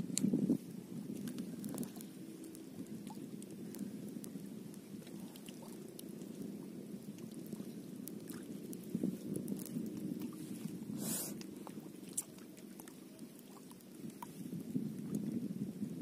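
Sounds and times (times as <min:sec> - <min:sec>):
small waves lapping: 0:00.6 - 0:15.3
faint ticks and clicks: 0:01.1 - 0:10.7.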